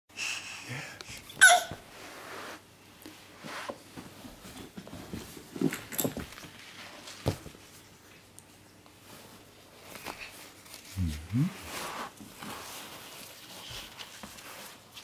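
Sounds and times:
baby squealing: 1.4 - 1.8
baby cooing and grunting: 11.0 - 11.7.

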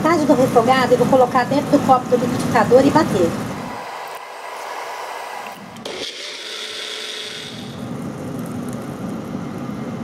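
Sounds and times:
blender motor whining: 3.1 - 8.0.

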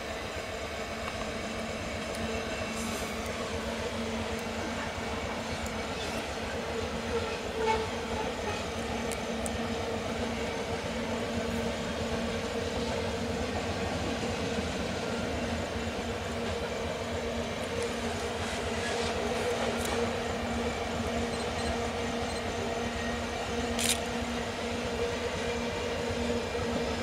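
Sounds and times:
locomotive approaching: 0.0 - 27.0
train wheels rumbling on rail: 0.0 - 27.0.

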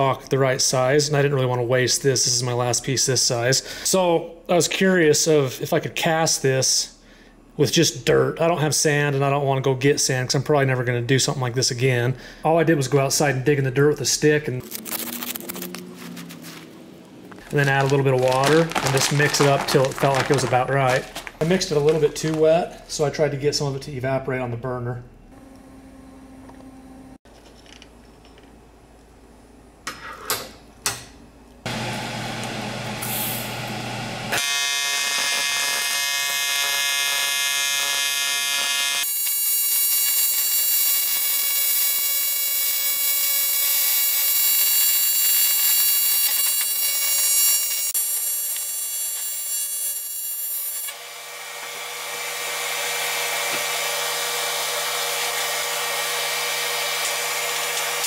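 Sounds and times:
welding arc buzzing: 14.6 - 22.4, 32.9 - 58.0.

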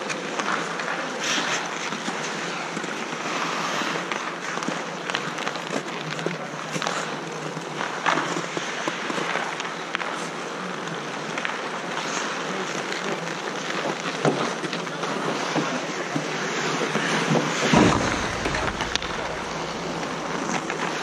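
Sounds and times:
skates scraping on ice: 0.1 - 5.8.

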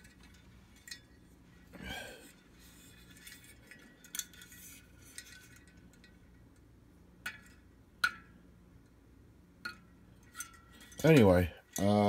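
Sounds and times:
metal weather vane clicking: 0.0 - 9.0, 9.6 - 12.0.

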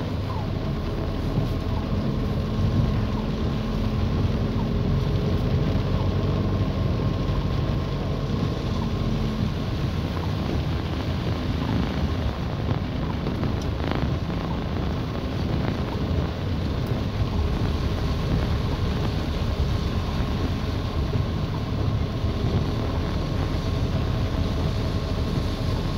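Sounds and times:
car engine hum: 0.0 - 25.9
tyres through water: 0.0 - 25.9.

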